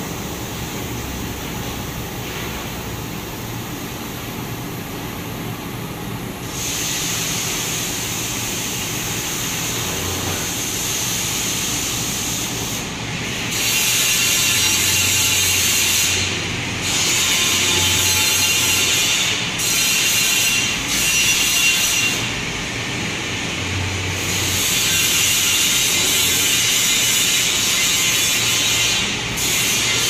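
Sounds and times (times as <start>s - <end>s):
printing machine mechanical hiss: 6.2s - 30.0s.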